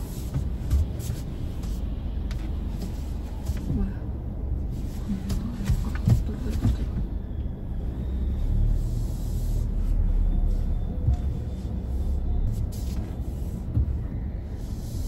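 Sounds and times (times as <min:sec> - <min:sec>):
car interior rumble: 0:00.0 - 0:15.0.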